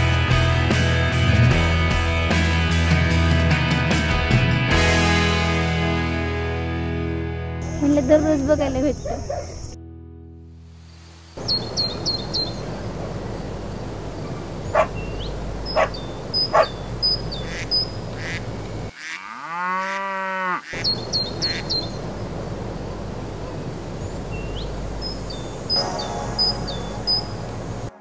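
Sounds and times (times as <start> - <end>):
sharp bird calls: 7.6 - 9.8, 11.4 - 19.0, 20.6 - 27.9
small birds chirping: 7.6 - 9.8, 11.2 - 18.9, 20.6 - 27.9
steady hiss: 10.7 - 16.3.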